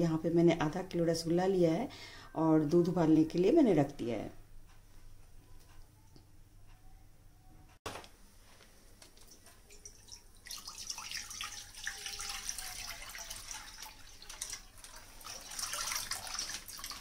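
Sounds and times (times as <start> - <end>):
milk pouring into a pan: 9.2 - 17.0.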